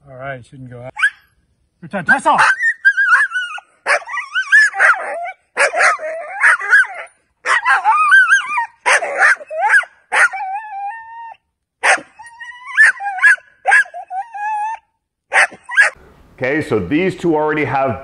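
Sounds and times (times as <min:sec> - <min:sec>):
puppy yapping: 0:00.9 - 0:01.3, 0:02.3 - 0:16.0
puppy whining: 0:00.9 - 0:01.4, 0:02.4 - 0:16.0.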